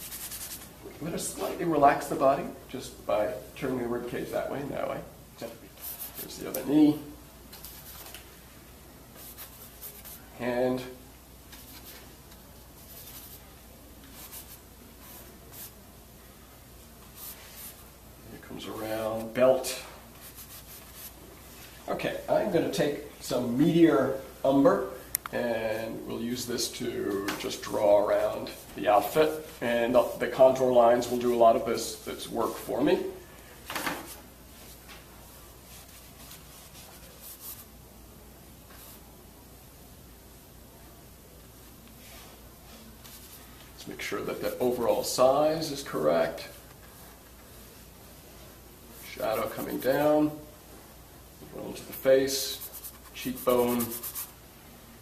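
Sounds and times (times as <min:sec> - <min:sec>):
paintbrush stroking canvas: 0:00.0 - 0:00.7, 0:05.8 - 0:06.4, 0:09.2 - 0:10.3, 0:11.5 - 0:12.1, 0:12.8 - 0:13.5, 0:14.1 - 0:15.8, 0:17.1 - 0:17.9, 0:20.2 - 0:21.8, 0:35.6 - 0:37.7, 0:42.0 - 0:43.6, 0:49.0 - 0:50.1, 0:51.9 - 0:54.4
paintbrush swishing on canvas: 0:17.1 - 0:17.9, 0:35.6 - 0:37.7, 0:52.5 - 0:54.4.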